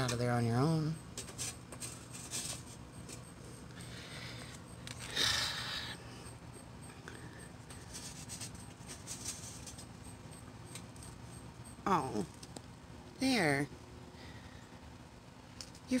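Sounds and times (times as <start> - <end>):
pen scraping metal tin: 1.2 - 3.2, 7.8 - 9.9
tin scraping as moved: 1.2 - 3.3, 7.8 - 9.9.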